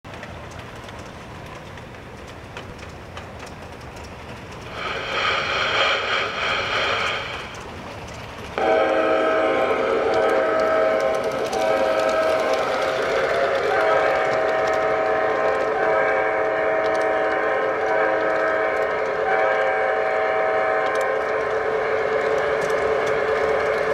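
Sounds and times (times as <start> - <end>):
model train rail clicks: 0.1 - 9.0, 9.6 - 23.9
train whistle blast: 8.6 - 12.6, 13.5 - 23.2
low multi-note train horn: 8.6 - 23.2.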